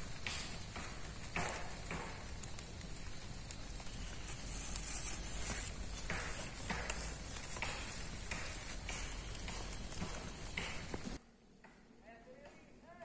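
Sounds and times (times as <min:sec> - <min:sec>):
faint steady high hiss: 0:00.0 - 0:13.0
cloth rustling: 0:04.2 - 0:08.8.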